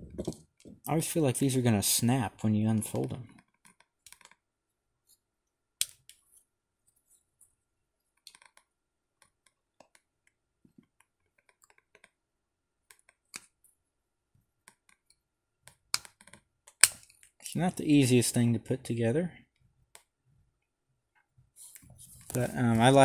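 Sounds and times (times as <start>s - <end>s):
thin plastic clicks and creaks: 3.3s - 4.4s, 8.2s - 10.0s.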